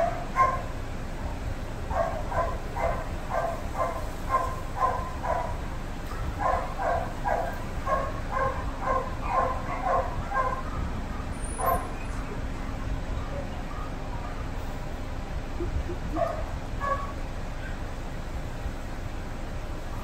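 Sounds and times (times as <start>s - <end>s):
dog yipping and whining: 6.4s - 12.0s.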